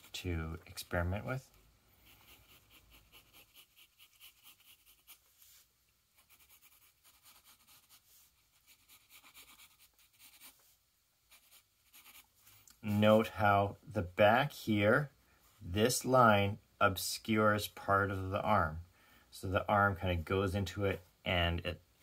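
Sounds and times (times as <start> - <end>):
pencil scratching on paper: 2.0 - 10.6, 11.3 - 12.4.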